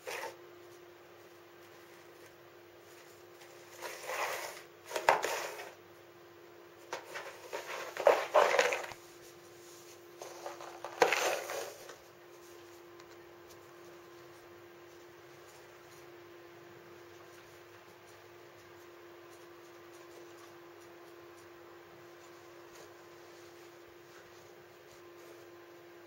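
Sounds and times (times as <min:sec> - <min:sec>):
faint steady hum: 0:00.0 - 0:26.0
egg carton scraping on floor: 0:03.6 - 0:05.8, 0:07.0 - 0:09.0, 0:09.8 - 0:12.1.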